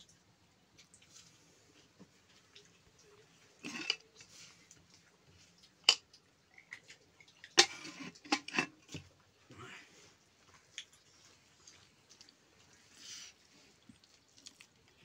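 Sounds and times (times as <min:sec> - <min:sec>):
metal pots clinking and clattering: 0:03.6 - 0:04.1, 0:05.8 - 0:06.1, 0:07.5 - 0:09.1.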